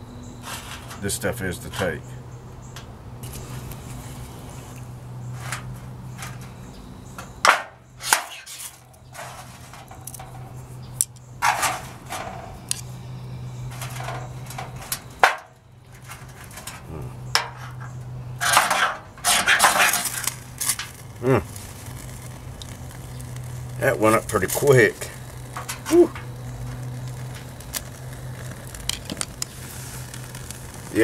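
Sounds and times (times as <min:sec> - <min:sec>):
knife scraping fire steel: 0:00.4 - 0:01.1, 0:07.5 - 0:10.7, 0:11.4 - 0:12.9, 0:15.9 - 0:23.7.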